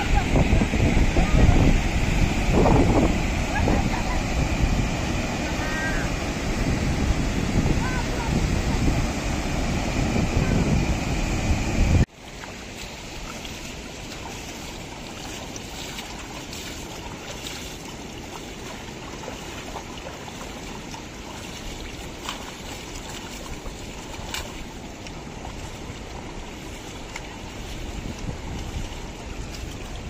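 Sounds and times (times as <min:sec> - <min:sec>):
river water flowing: 0:00.0 - 0:30.0
light water splashes: 0:12.0 - 0:30.0.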